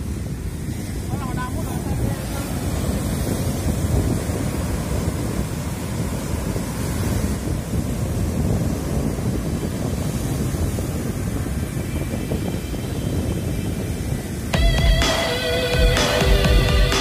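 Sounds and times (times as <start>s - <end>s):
surf washing onto beach: 0.0s - 17.0s
wind buffeting microphone: 0.0s - 17.0s.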